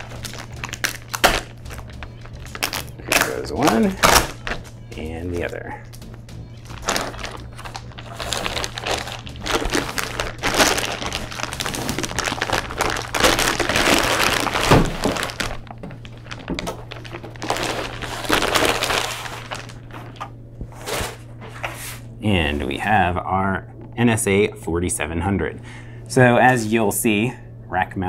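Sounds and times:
plastic bag crinkling: 0.0s - 21.2s.

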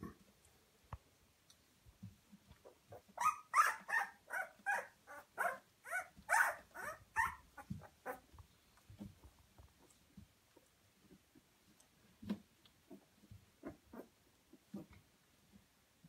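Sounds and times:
puppy whimpering squeals: 2.9s - 8.2s.

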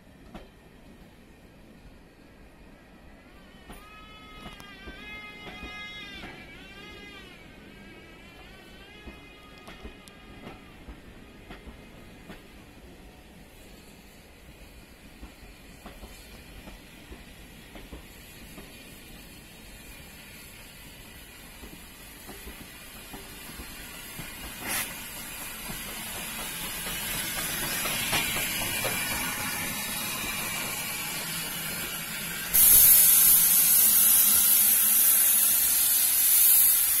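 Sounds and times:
steam locomotive hissing: 3.7s - 37.0s
loud hiss of escaping steam: 13.3s - 37.0s.

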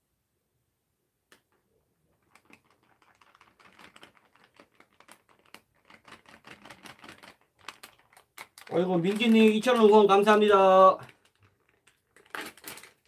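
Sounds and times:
plastic pouch crinkling: 2.1s - 13.0s.

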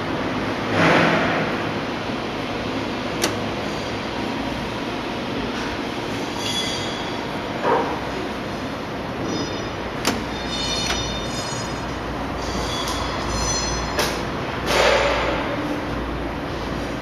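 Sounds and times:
short high-pitched squeals: 6.2s - 7.3s.

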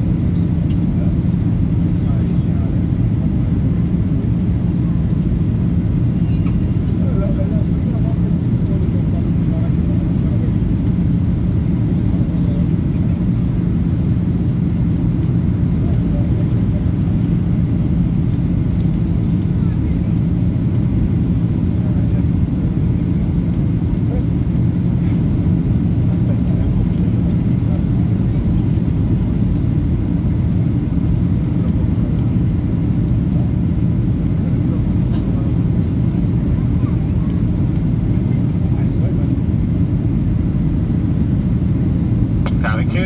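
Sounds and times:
jet engine drone: 0.0s - 43.0s
low hum: 0.0s - 43.0s.

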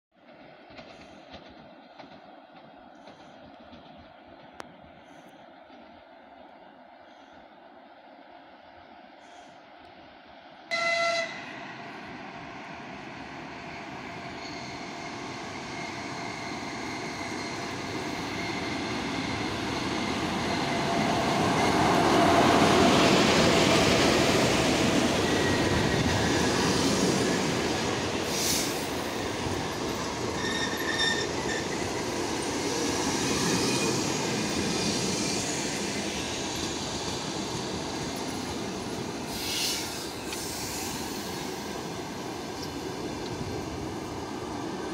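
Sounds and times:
train rumbling past: 0.2s - 44.9s
train horn blast: 10.7s - 11.8s
train wheel squeal: 10.7s - 44.9s.

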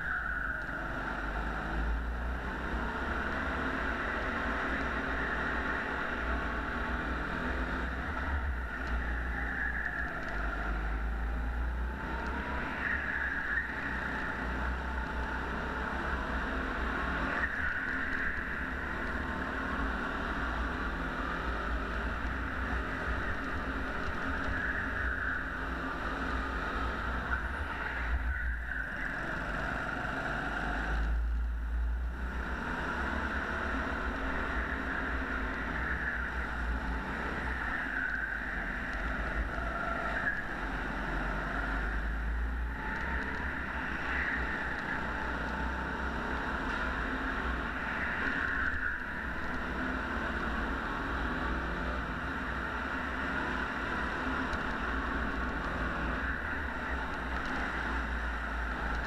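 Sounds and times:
go-kart engine droning: 0.0s - 59.0s.

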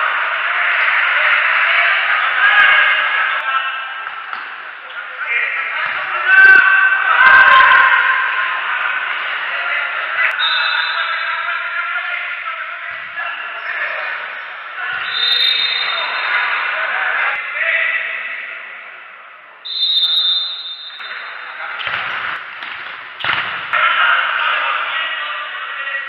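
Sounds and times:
people shouting in a hall: 0.0s - 22.4s, 23.2s - 26.0s
referee whistle blasts: 10.4s - 11.5s, 14.9s - 16.3s, 19.6s - 21.4s
ball thumps: 21.0s - 23.8s.

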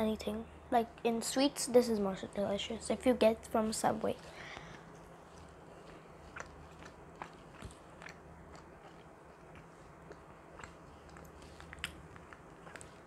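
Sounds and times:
low steady hum: 0.0s - 13.0s
chewing cookie: 4.2s - 13.0s
mouth clicks: 5.9s - 13.0s.

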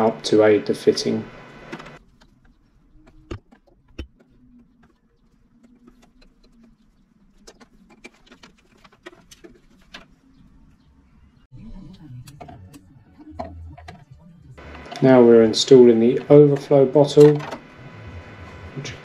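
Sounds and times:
plastic hose handling noises: 5.6s - 10.3s.

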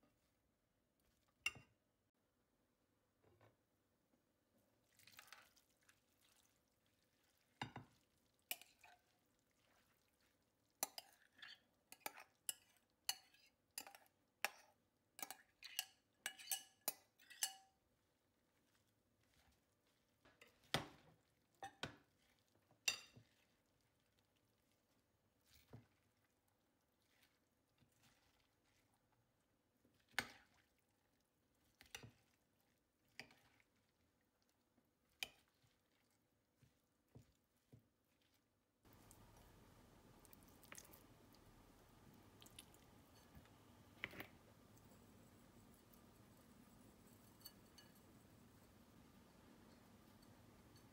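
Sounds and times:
metal spoon clinking on glass dish: 10.8s - 17.7s, 47.2s - 48.0s.

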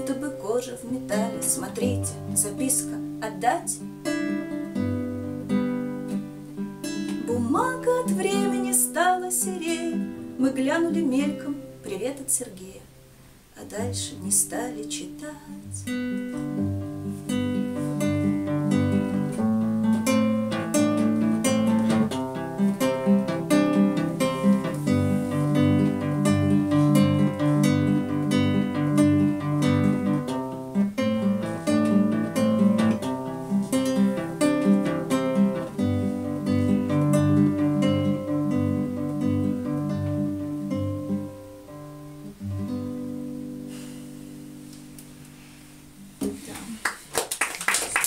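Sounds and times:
acoustic guitar playing: 0.0s - 46.2s.

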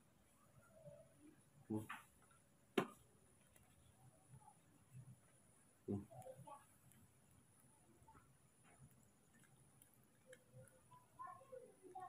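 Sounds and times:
faint clicks: 5.9s - 12.0s.

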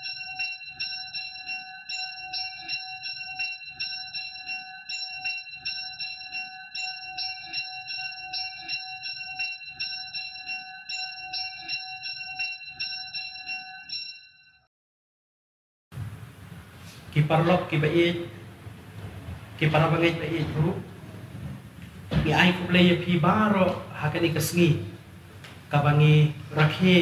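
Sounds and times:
church bells pealing: 19.6s - 21.2s.

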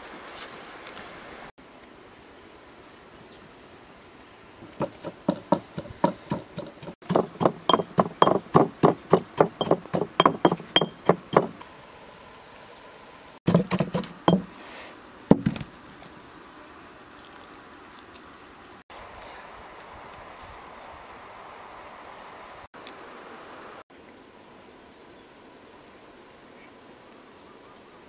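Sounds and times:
stone pestle pounding in mortar: 4.8s - 11.6s, 13.5s - 14.5s.

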